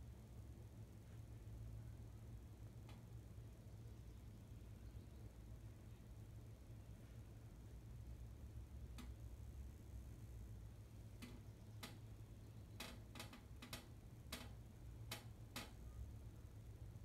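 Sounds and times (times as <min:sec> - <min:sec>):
low steady hum: 0:00.0 - 0:17.0
faint sharp clicks: 0:11.2 - 0:12.1.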